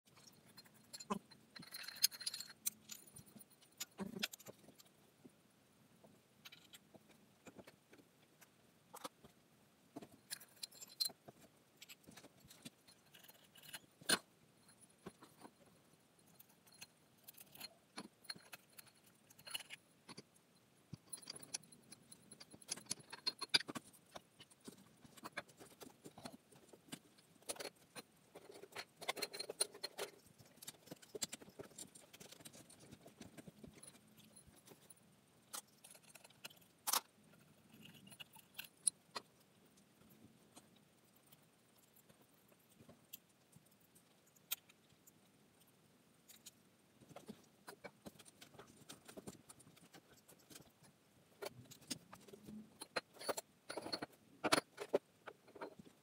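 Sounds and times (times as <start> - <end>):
metallic clicks and clinks: 0.1 - 4.9, 10.0 - 37.1.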